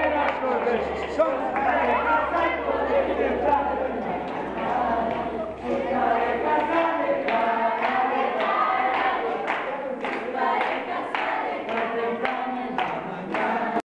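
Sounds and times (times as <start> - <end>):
children singing in unison: 0.0 - 13.8
hands clapping in time: 6.6 - 13.6.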